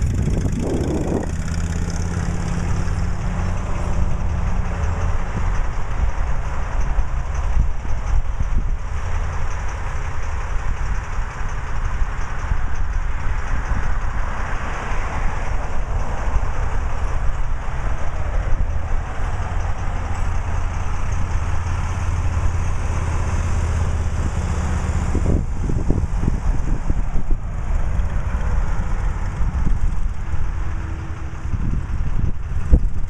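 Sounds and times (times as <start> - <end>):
motorcycle engine rumbling: 0.0 - 33.0
road traffic noise: 0.0 - 33.0.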